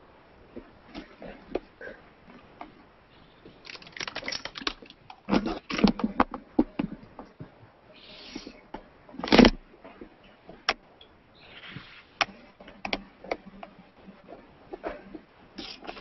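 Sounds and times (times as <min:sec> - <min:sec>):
plastic bag crinkling: 0:03.6 - 0:05.0.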